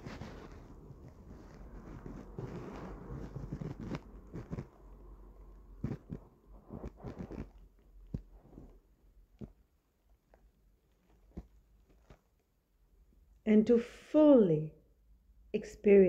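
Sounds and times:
clothing rustling: 0:00.0 - 0:04.9, 0:05.8 - 0:08.8, 0:10.3 - 0:12.4.

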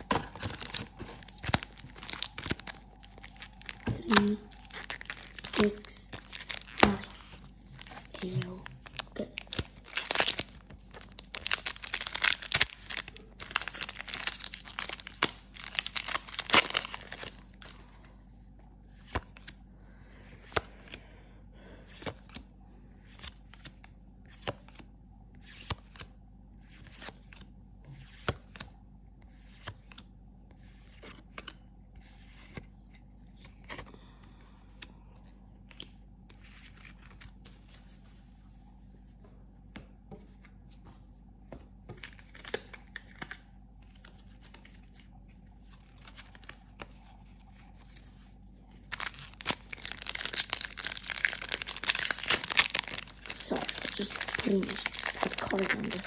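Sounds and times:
foil pack tearing and crinkling: 0:00.0 - 0:17.4, 0:48.8 - 0:56.0.

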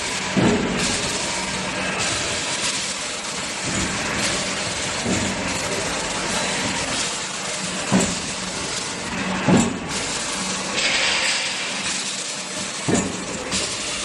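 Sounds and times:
die cutting machine humming: 0:00.0 - 0:14.0
machine thumps: 0:00.3 - 0:01.3, 0:03.6 - 0:05.9, 0:07.8 - 0:08.8, 0:09.4 - 0:10.0, 0:12.8 - 0:13.8.

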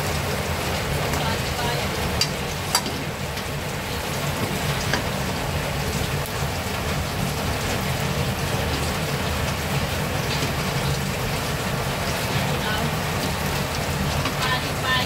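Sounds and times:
garlic sizzling in oil: 0:00.0 - 0:15.0
metal spatula tapping pan: 0:02.2 - 0:03.1.

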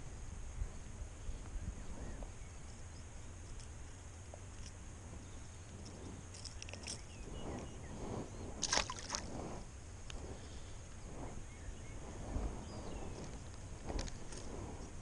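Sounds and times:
fish splashing into water: 0:08.6 - 0:09.2.

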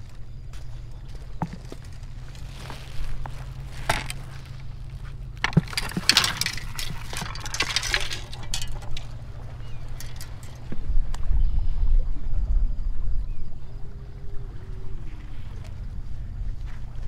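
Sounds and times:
footsteps on boulders: 0:00.0 - 0:09.1
steady low rumble: 0:00.0 - 0:17.0
gear clinking and knocking: 0:03.2 - 0:04.5, 0:05.4 - 0:10.8.

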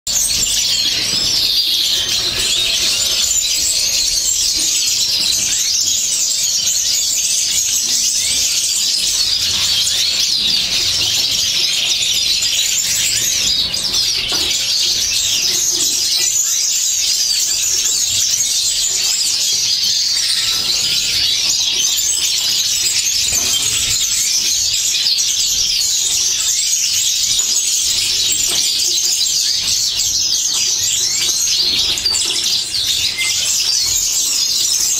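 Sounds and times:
finches chirping and twittering: 0:00.1 - 0:34.9.

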